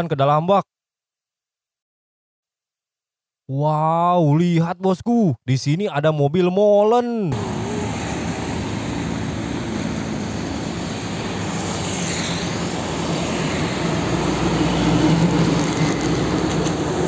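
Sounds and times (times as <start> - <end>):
motorcycles: 7.3 - 17.0
truck driving past: 7.3 - 17.0.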